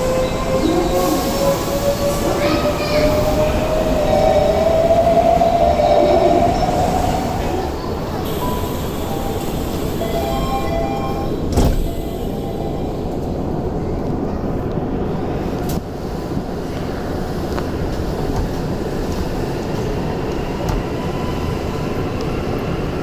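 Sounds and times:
electric train whine: 0.0 - 13.8
train rumble: 0.0 - 23.0.

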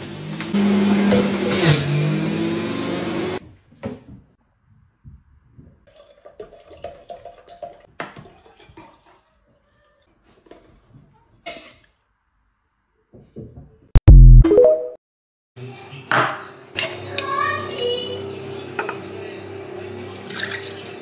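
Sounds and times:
electric juicer motor running: 0.0 - 3.4
water poured into glass jar: 5.9 - 8.7.

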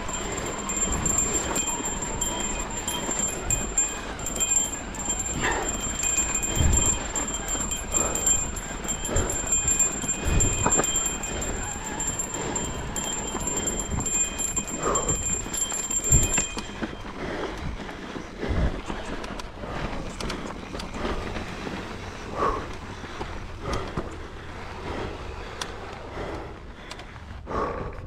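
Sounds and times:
footsteps on dirt trail: 0.0 - 28.0
wind on microphone: 6.5 - 16.6.

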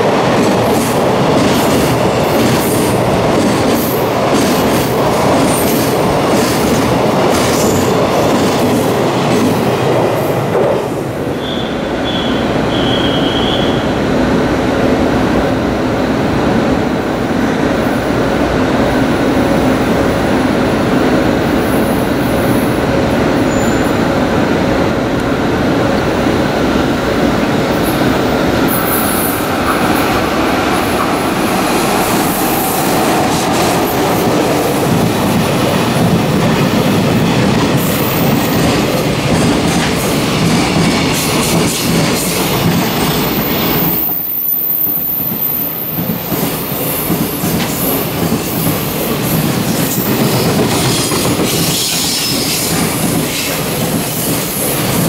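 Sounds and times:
train wheels clattering over rails: 0.0 - 11.2, 24.9 - 44.3, 44.9 - 55.0
high wheel squeals: 11.3 - 13.9.

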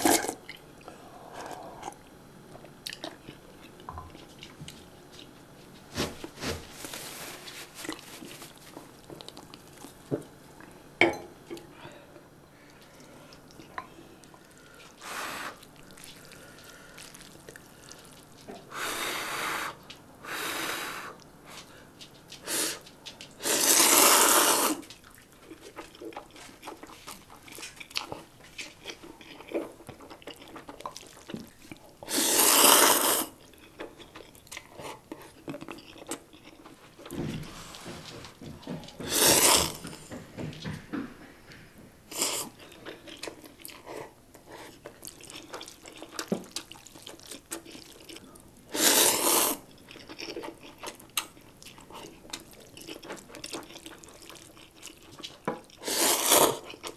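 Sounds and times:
slurping noodles: 23.4 - 24.9, 32.1 - 33.4, 39.0 - 39.8, 48.7 - 49.6, 55.8 - 56.8.

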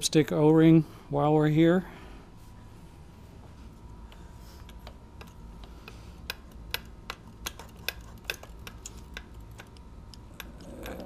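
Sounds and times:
engine parts clicking and tapping: 4.1 - 11.0.

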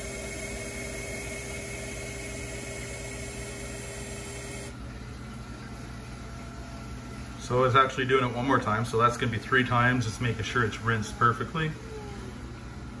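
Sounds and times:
small motor whine: 0.0 - 4.8.

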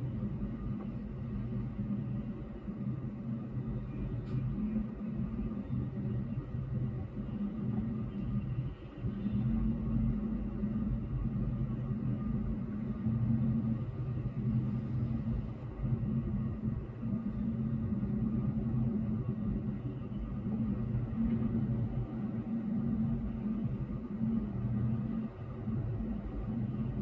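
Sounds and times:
city traffic rumble: 0.0 - 27.0
faint hum: 0.0 - 27.0.

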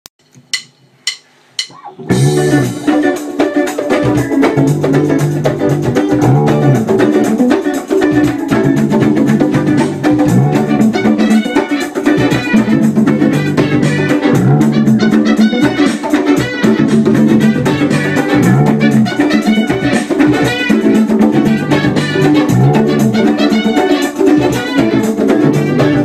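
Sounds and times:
sharp count-in clicks: 0.2 - 1.9
band playing dance groove: 0.4 - 26.0.

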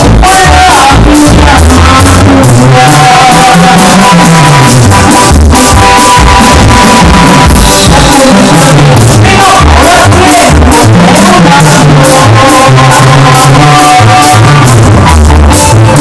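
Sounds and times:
bass line: 0.0 - 16.0
sustained keyboard notes: 0.0 - 16.0
drum beat: 4.8 - 13.0.

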